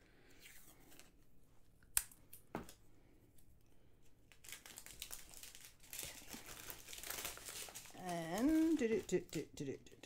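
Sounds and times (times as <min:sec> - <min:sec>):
plastic bag crinkling: 0:04.3 - 0:09.8.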